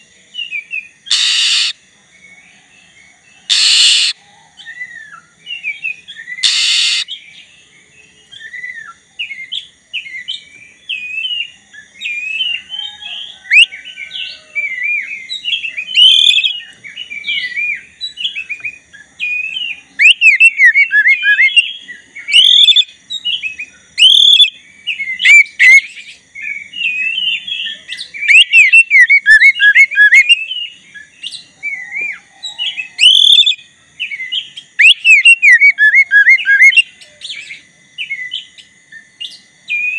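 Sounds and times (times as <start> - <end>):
bird singing: 0.0 - 39.9
harsh bird call: 1.1 - 1.8, 3.5 - 7.2.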